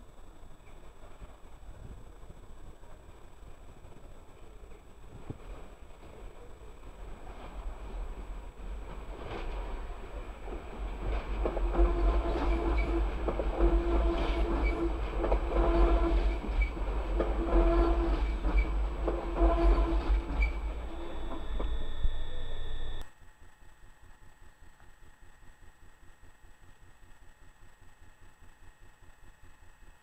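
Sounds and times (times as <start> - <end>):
train low rumble: 0.0 - 29.8
train wheels clattering over rail joints: 8.8 - 21.8
steady high tone: 20.7 - 23.0.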